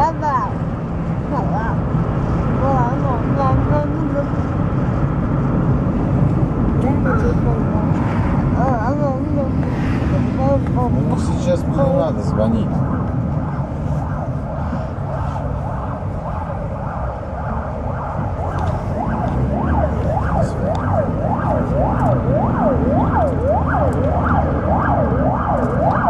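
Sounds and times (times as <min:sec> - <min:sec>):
car cabin road noise: 0:00.0 - 0:26.0
emergency siren wailing: 0:10.9 - 0:26.0.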